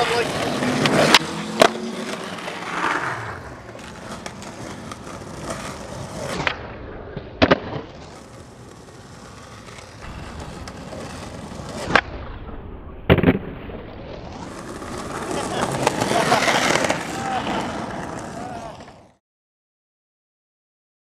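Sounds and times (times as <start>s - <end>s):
skateboard wheels rolling on asphalt: 0.0s - 12.2s, 13.1s - 19.2s
skateboard clacking on pavement: 3.7s - 6.5s, 7.4s - 12.0s, 14.4s - 19.1s.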